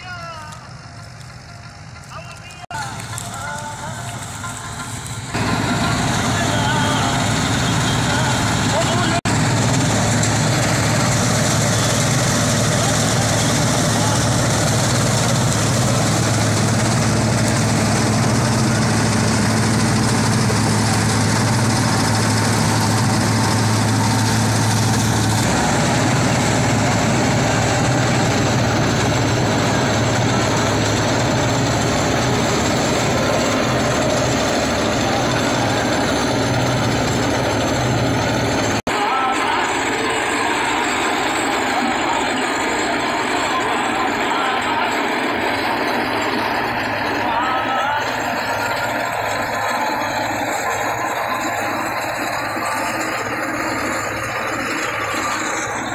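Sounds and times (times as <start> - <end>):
tractor engine drone: 0.0 - 55.9
chopped straw rushing: 2.8 - 36.4
chopper whirring: 4.3 - 55.9.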